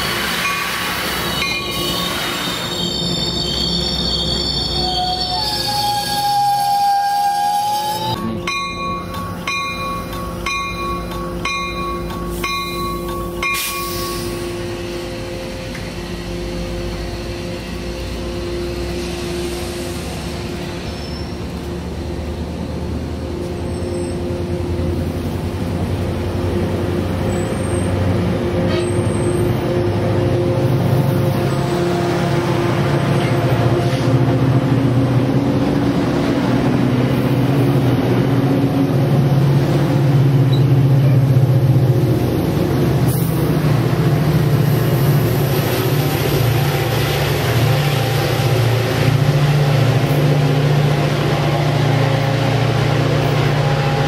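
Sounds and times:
diesel locomotive engine: 0:00.0 - 0:54.0
train rolling past: 0:00.0 - 0:54.0
locomotive bell ringing: 0:01.4 - 0:02.0, 0:08.0 - 0:19.0.

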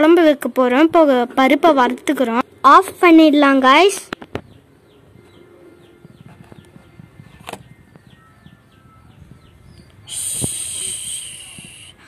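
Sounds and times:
small bird chirping: 0:04.2 - 0:12.0
gas hissing from stove: 0:10.1 - 0:12.0.

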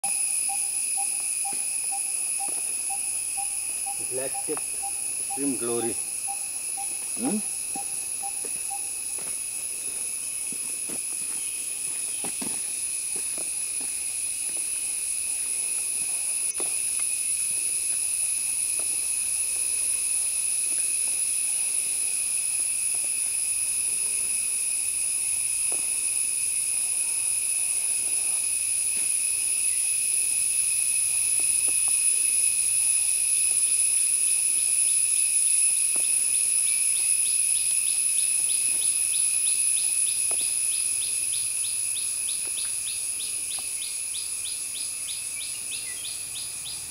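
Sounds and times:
fast pulsing call: 0:00.0 - 0:09.0
insects droning: 0:00.0 - 0:46.9.

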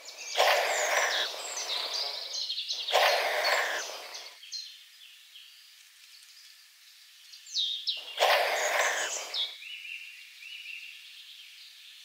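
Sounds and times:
bird chick hissing: 0:00.0 - 0:04.4, 0:08.0 - 0:09.6
songbirds chirping: 0:00.0 - 0:12.0.

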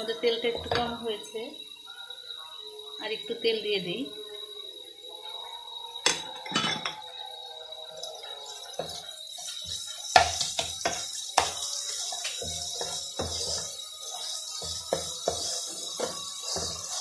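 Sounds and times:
hot oil sizzling: 0:07.9 - 0:17.0
wooden spatula knocking on pan: 0:10.2 - 0:13.8, 0:14.6 - 0:17.0.

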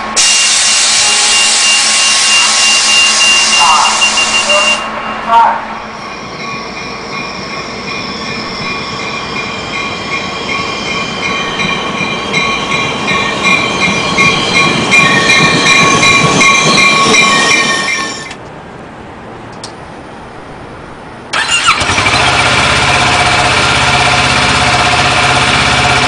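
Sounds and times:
train running on rails: 0:00.0 - 0:26.0
steady high tones: 0:00.2 - 0:18.4.

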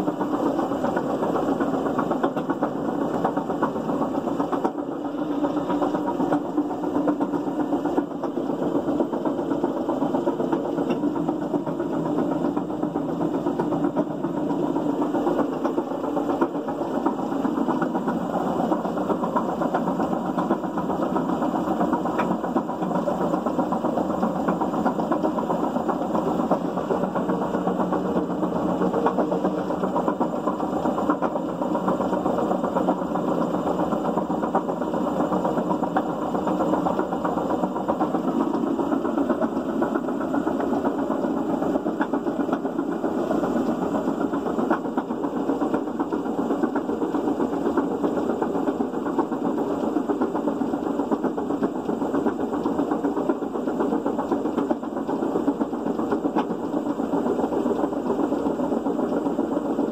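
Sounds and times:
washing machine drum noise: 0:00.0 - 0:59.9.

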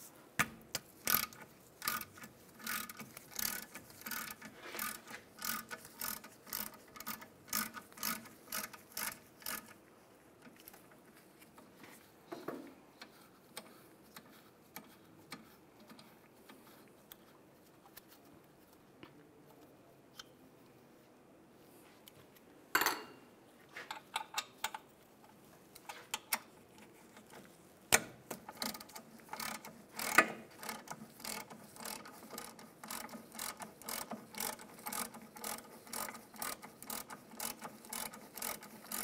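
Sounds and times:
hand ratchet clicking: 0:00.7 - 0:09.8, 0:27.2 - 0:39.0.

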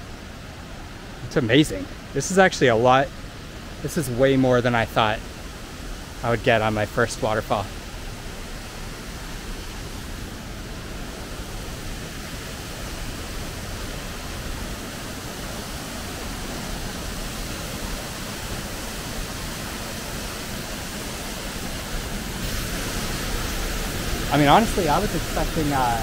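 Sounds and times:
waterfall rushing: 0:00.0 - 0:26.0.

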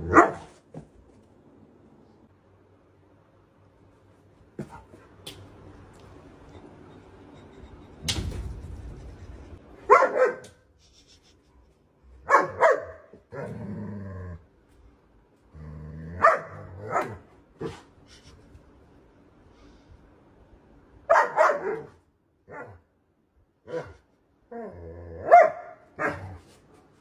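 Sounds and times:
dog barking: 0:00.0 - 0:00.5, 0:09.9 - 0:10.6, 0:12.2 - 0:13.2, 0:16.2 - 0:17.8, 0:21.1 - 0:22.8, 0:23.7 - 0:24.0, 0:25.2 - 0:26.3
dog growling low: 0:13.3 - 0:14.5, 0:15.5 - 0:16.8, 0:24.5 - 0:25.3.

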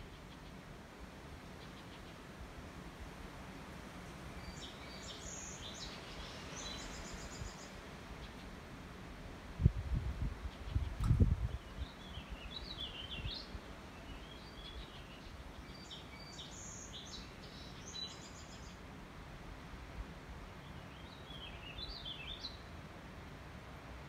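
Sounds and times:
songbirds warbling: 0:04.3 - 0:08.6, 0:10.4 - 0:18.9, 0:20.4 - 0:22.7.

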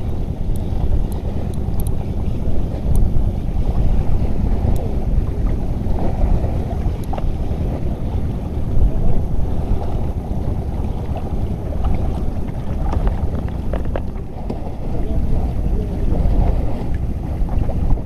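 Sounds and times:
wind buffeting microphone: 0:00.0 - 0:18.0
faint clicks: 0:00.5 - 0:02.0.

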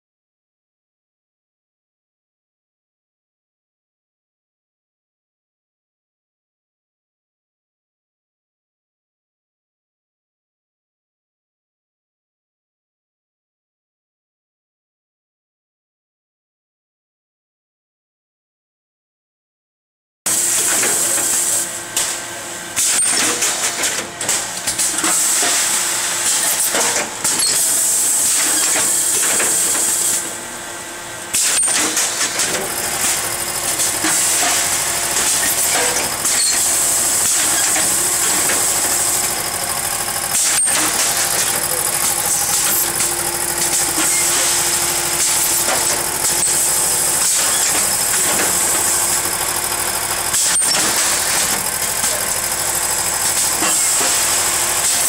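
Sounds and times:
sharp mechanical clicks and knocks: 0:20.3 - 0:22.1, 0:22.8 - 0:30.4, 0:31.3 - 0:55.0
packing machine running: 0:20.3 - 0:55.0.

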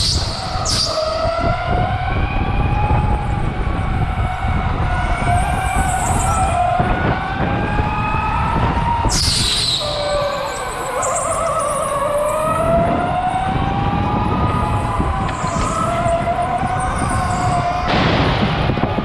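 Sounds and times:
high squeal: 0:00.0 - 0:01.6, 0:09.0 - 0:13.0, 0:14.4 - 0:18.5.

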